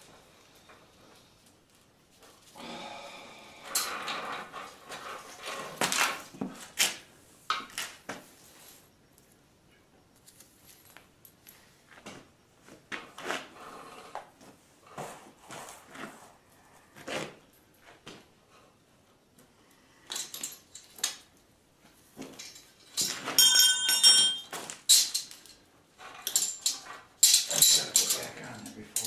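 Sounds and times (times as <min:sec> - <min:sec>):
roller chain rattling on metal rail: 0:22.4 - 0:29.0.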